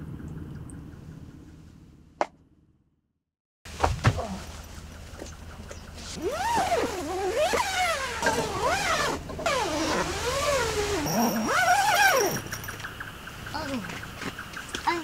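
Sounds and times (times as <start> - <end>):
tent zipper being drawn: 6.2 - 12.4.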